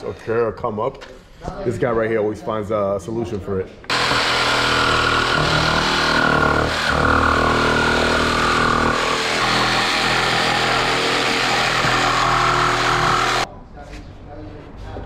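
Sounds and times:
jigsaw cutting plastic: 3.9s - 13.5s.

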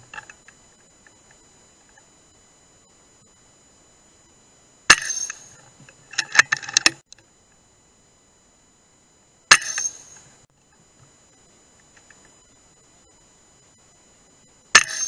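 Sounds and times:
air rifle shots: 4.9s - 5.4s, 9.5s - 10.0s.

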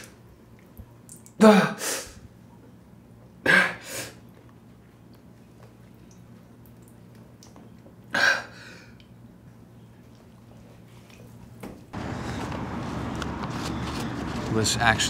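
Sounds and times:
low room hum: 0.0s - 15.0s
outdoor street ambience: 9.3s - 15.0s.

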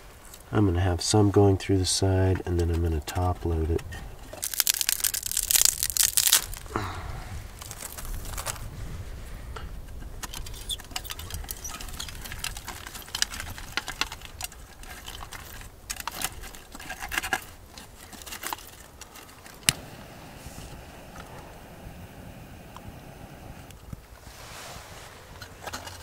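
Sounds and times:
twigs snapping against stove: 4.4s - 6.8s, 7.6s - 8.6s, 10.2s - 19.8s.

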